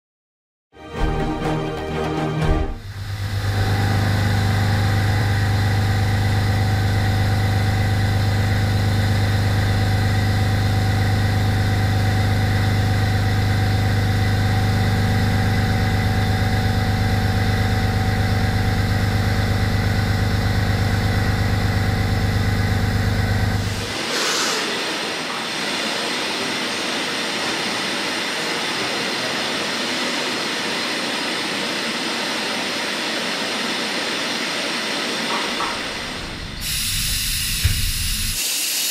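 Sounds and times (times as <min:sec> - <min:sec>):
steady deep hum: 0:02.3 - 0:24.0, 0:35.8 - 0:38.4
machining centre hiss and whine: 0:02.8 - 0:38.9.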